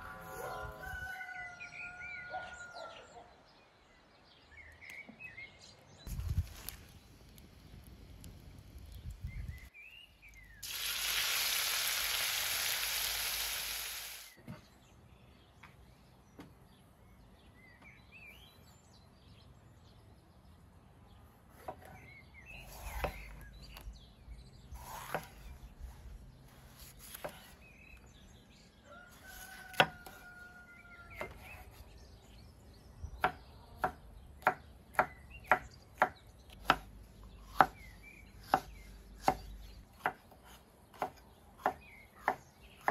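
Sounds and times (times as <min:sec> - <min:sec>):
oil sizzling in a pan: 0:10.6 - 0:14.4
knife chopping on wooden board: 0:29.5 - 0:30.2, 0:38.5 - 0:42.9.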